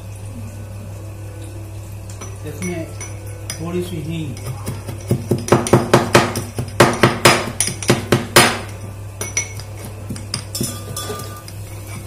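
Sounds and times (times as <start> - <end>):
spoon clinking against pot: 2.1 - 12.0
pestle pounding in mortar: 4.3 - 12.0.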